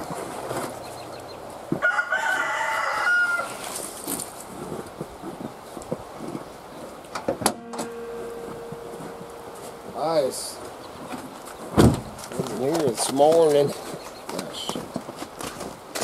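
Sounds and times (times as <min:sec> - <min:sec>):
rooster crowing: 0:01.8 - 0:03.5
steady low tone: 0:07.4 - 0:11.4.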